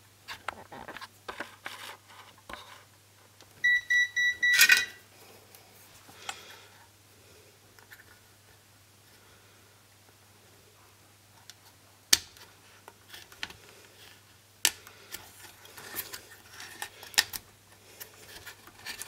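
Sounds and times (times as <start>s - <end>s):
short electronic beeps: 3.6s - 5.0s.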